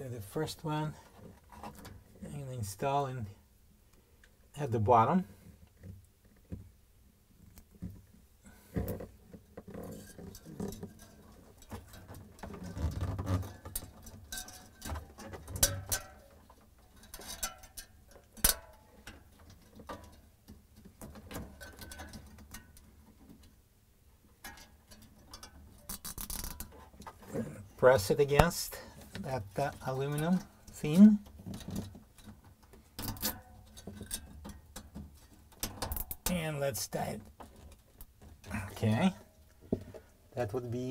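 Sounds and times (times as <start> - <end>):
hands clicking and scratching plastic: 24.4 - 27.2.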